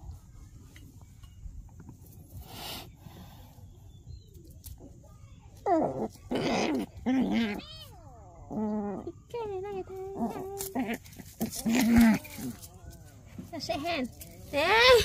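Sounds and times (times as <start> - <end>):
rustling: 10.0 - 15.0.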